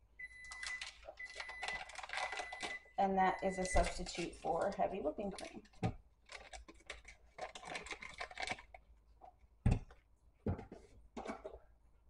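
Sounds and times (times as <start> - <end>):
paper wrapper rustling: 0.4 - 2.8, 3.5 - 8.8.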